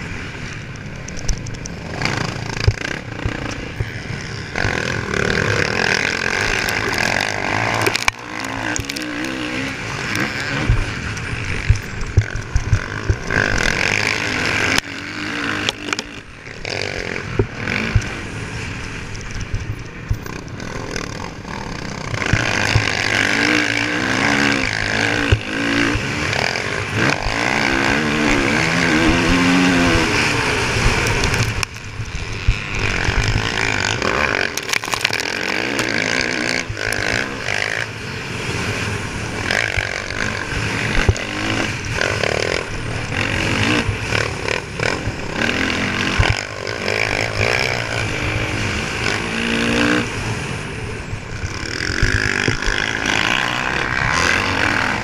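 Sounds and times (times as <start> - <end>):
dirt bike engine revving: 0.0 - 55.0
bike knocks and clatter: 11.6 - 13.3.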